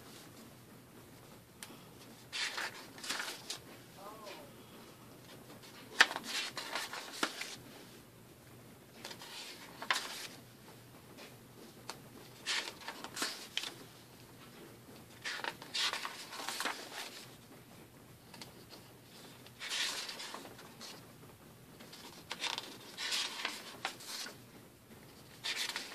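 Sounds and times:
book pages turning: 1.8s - 3.8s, 5.2s - 7.7s, 8.9s - 10.4s, 11.2s - 17.5s, 18.2s - 21.0s, 21.8s - 24.4s, 25.1s - 25.9s.

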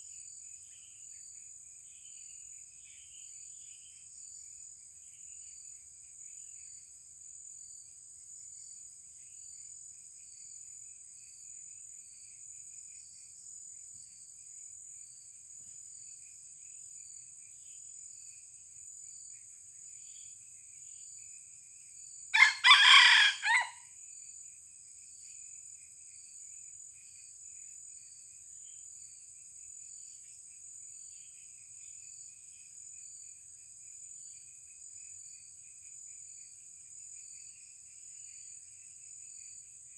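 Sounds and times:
rooster crowing: 22.4s - 23.8s.

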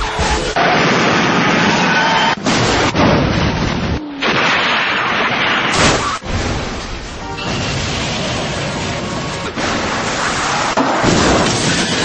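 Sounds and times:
cars crashing: 0.0s - 12.0s
music: 7.1s - 7.9s.

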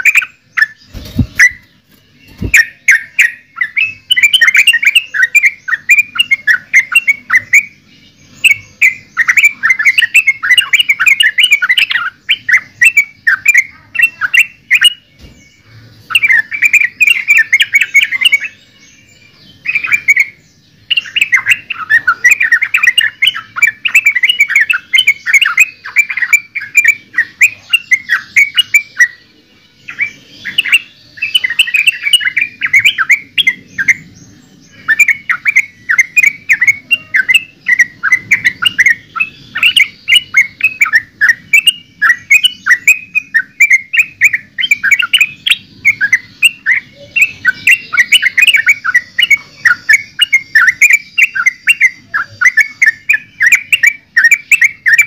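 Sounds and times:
bird singing chattering notes: 0.0s - 55.0s.

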